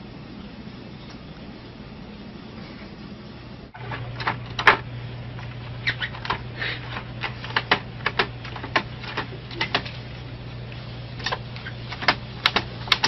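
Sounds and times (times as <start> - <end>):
steady low hum: 0.0 - 13.0
printer clicks and taps: 3.9 - 4.9, 6.2 - 9.9, 11.2 - 13.0.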